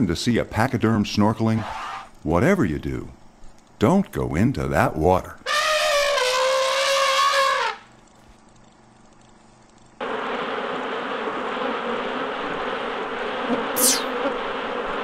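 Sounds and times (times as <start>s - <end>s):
short falling whistle: 13.8s - 14.2s.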